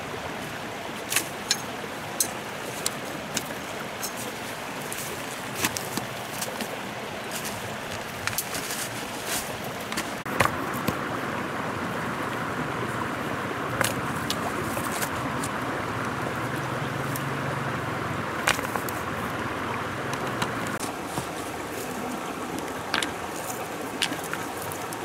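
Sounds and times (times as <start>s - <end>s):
river flowing over rocks: 0.0s - 25.0s
river stones knocking together: 1.0s - 11.1s, 13.7s - 15.6s, 18.3s - 19.1s, 20.1s - 25.0s.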